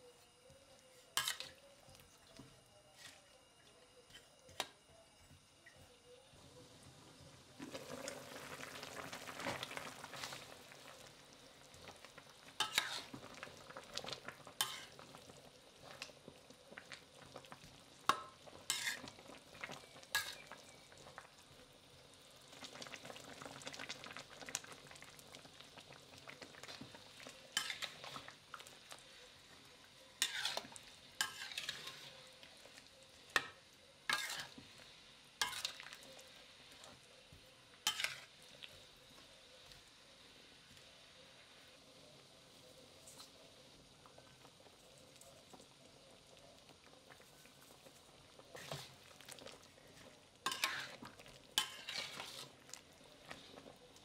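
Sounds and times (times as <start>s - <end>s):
faint sizzle: 0.0s - 54.0s
metal spatula scraping pan: 1.1s - 1.6s, 12.6s - 13.2s, 14.6s - 15.0s, 18.7s - 19.2s, 20.1s - 20.5s, 27.5s - 28.3s, 30.2s - 32.2s, 34.1s - 34.6s, 35.4s - 35.8s, 37.8s - 38.3s, 48.6s - 49.0s, 50.4s - 51.0s, 51.6s - 52.5s.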